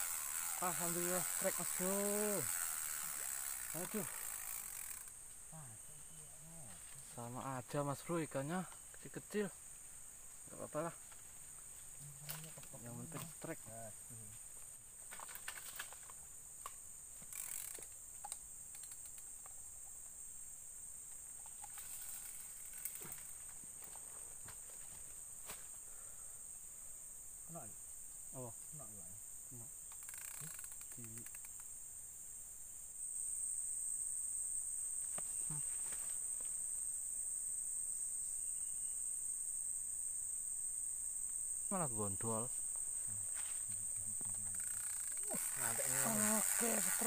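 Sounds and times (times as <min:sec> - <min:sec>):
fishing reel clicks: 0:00.0 - 0:05.2, 0:17.3 - 0:19.2, 0:21.6 - 0:23.0, 0:29.9 - 0:31.7, 0:44.5 - 0:47.0
insects droning: 0:00.0 - 0:47.0.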